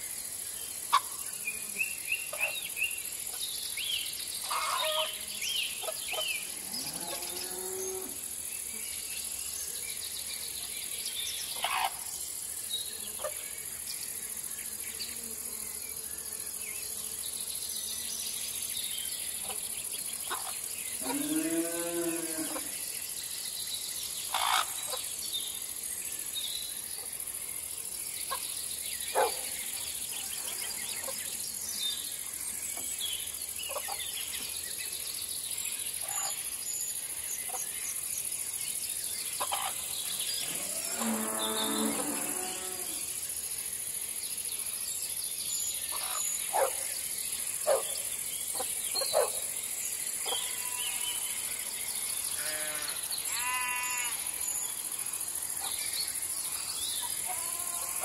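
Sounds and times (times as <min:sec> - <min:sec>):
crickets and insects chirring: 0:00.0 - 0:58.0
livestock call: 0:04.5 - 0:05.2, 0:40.4 - 0:43.0, 0:52.4 - 0:54.4, 0:57.2 - 0:58.0.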